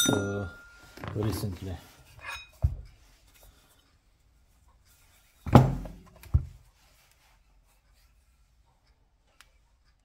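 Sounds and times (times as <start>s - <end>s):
heavy metal thunks on workbench: 5.5s - 6.5s.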